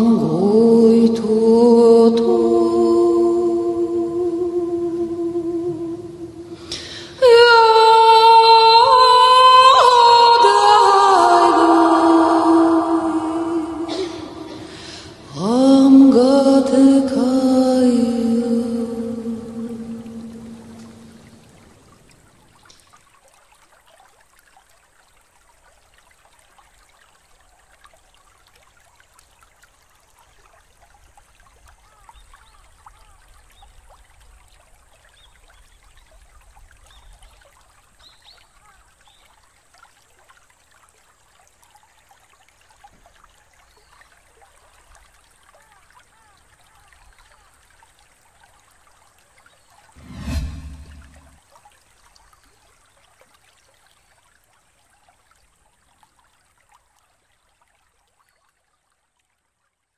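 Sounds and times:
sung chant: 0.0 - 7.9, 8.6 - 21.3, 50.0 - 51.4
water trickling and bubbling: 0.0 - 59.4.

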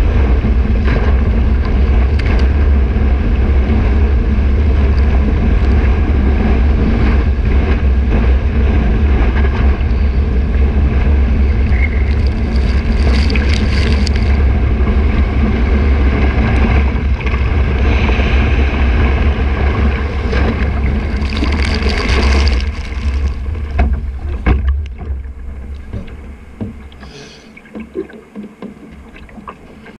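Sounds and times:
wind buffeting microphone: 0.0 - 27.0
water gurgling around hull: 0.0 - 29.9
water splashing: 0.0 - 29.9
whitewater rushing: 9.0 - 28.2.

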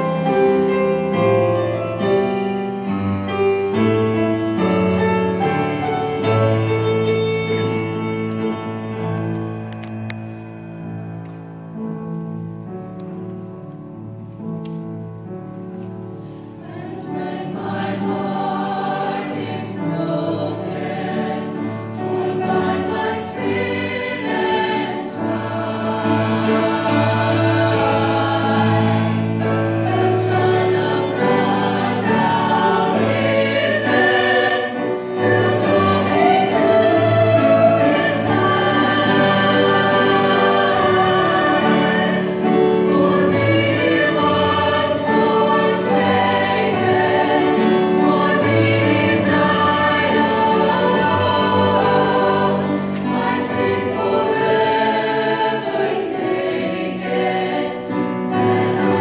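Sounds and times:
mixed choir singing: 16.2 - 59.0.

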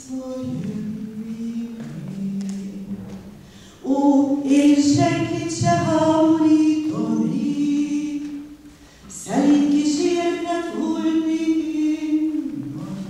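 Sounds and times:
woman singing unaccompanied: 0.0 - 3.2, 3.8 - 13.0
singer breath: 3.4 - 3.8, 8.7 - 9.1.

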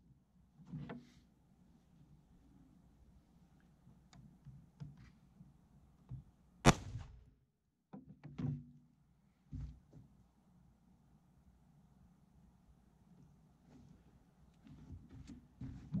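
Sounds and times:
sharp loud bang: 6.7 - 7.3
light knocks and thuds: 9.5 - 10.1.

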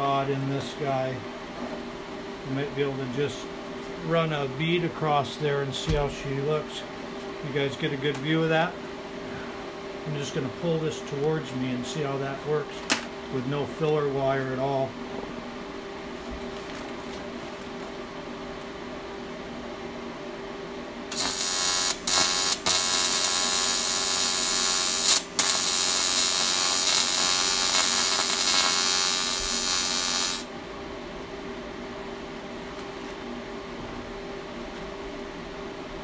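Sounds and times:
steady hum: 0.0 - 36.0
welding arc buzzing: 21.1 - 30.5.

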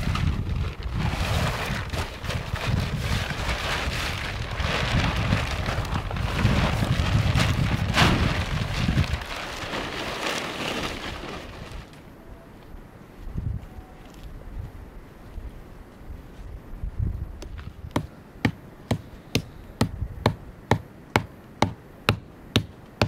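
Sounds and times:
wind buffeting microphone: 0.0 - 10.0, 12.7 - 18.2, 18.9 - 20.8.

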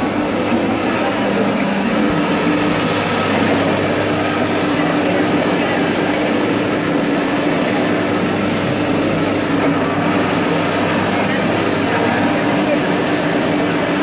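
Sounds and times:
crowd chatter: 0.0 - 14.0
juice press humming: 0.0 - 14.0.

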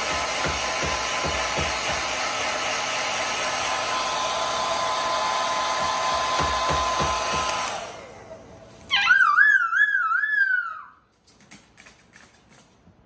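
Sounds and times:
hair dryer blowing: 0.0 - 8.9.

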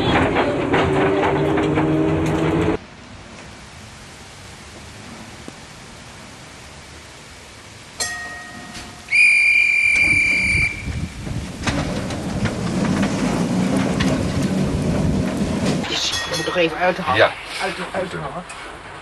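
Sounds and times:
bell ding: 8.0 - 9.1, 16.0 - 17.0
shrill steady whistle: 9.1 - 11.0
low rumble with knocks: 10.0 - 15.9.

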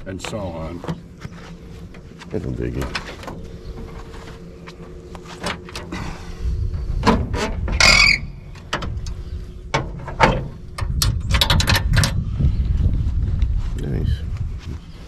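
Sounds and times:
wind rumble on microphone: 2.8 - 15.0
car hood squeak: 7.3 - 8.4
metal clicks and knocks: 8.5 - 12.2.

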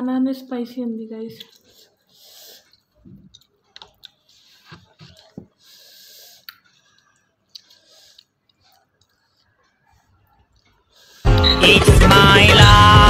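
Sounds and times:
chewing: 1.4 - 11.3
breathing: 1.6 - 2.9, 5.5 - 8.8, 10.9 - 11.3.

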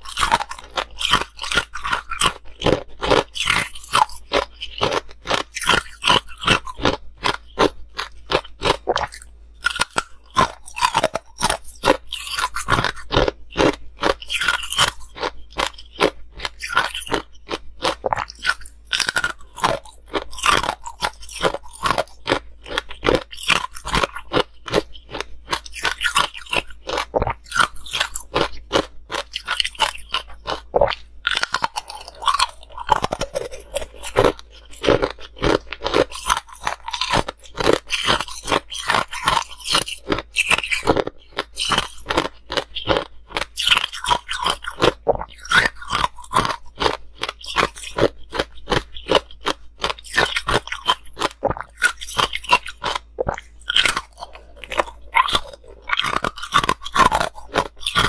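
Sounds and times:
ice crunching being chewed: 0.0 - 58.0.

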